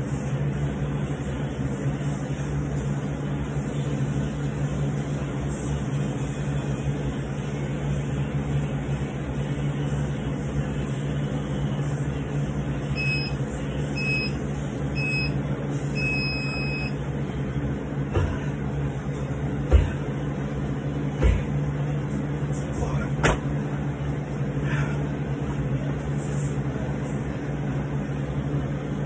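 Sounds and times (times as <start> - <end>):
steady low hum: 0.0 - 29.0
long timer beep: 13.0 - 13.4, 14.0 - 14.4, 15.0 - 15.4, 16.0 - 17.0
timer beeps: 13.0 - 13.4, 14.0 - 14.4, 15.0 - 15.4, 16.0 - 17.0.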